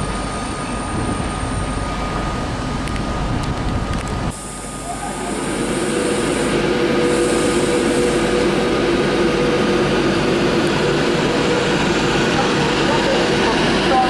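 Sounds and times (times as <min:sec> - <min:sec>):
train rolling noise: 0:00.0 - 0:14.0
electric train two-note hum: 0:04.3 - 0:14.0.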